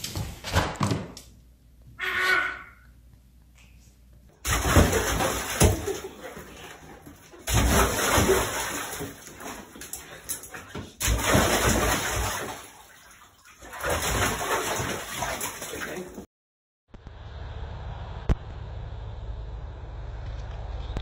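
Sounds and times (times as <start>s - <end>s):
dog splashing in bath water: 4.4s - 16.3s.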